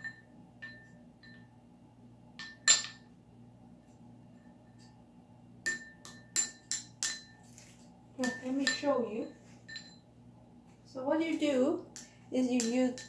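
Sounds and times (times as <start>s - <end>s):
plastic spoon knocking a bowl: 11.9s - 13.0s.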